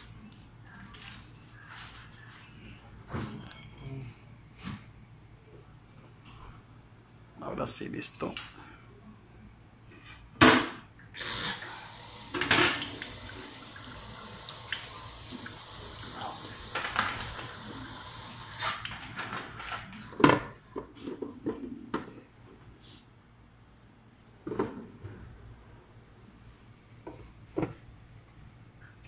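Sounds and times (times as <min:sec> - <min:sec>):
water sizzling on hot plates: 0:11.2 - 0:19.1.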